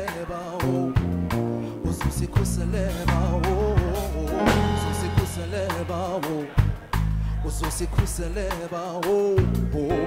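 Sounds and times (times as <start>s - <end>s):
keyboard: 0.0s - 8.6s, 9.3s - 10.0s
electric bass notes: 0.6s - 8.5s, 9.4s - 10.0s
drum kit hits: 2.3s - 7.2s.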